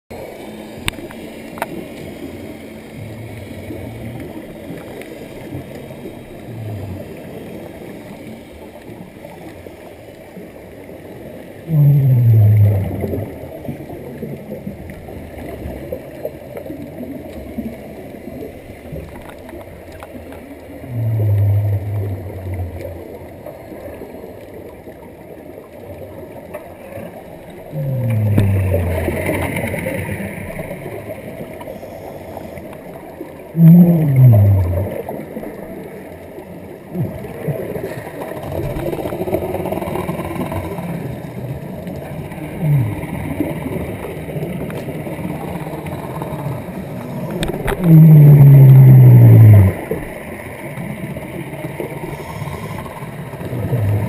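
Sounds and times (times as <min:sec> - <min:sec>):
regulator bubbling underwater: 0:00.1 - 0:54.0
underwater hiss: 0:27.8 - 0:54.0.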